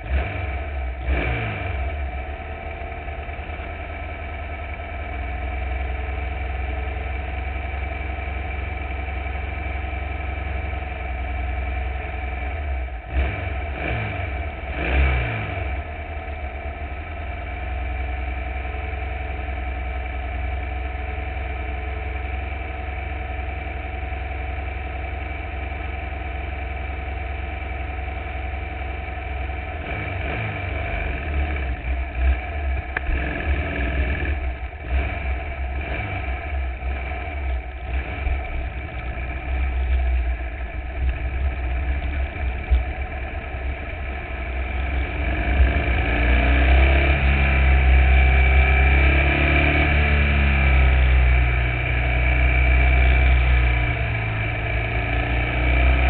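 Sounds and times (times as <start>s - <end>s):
car engine idling and revving: 0.0s - 56.0s.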